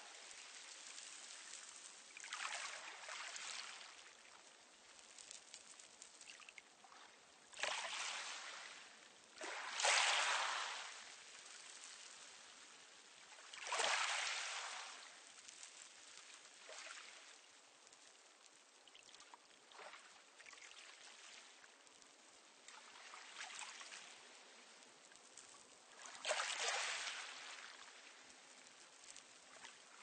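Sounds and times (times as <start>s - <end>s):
waves washing onto pebble beach: 9.4s - 12.1s, 13.3s - 16.0s.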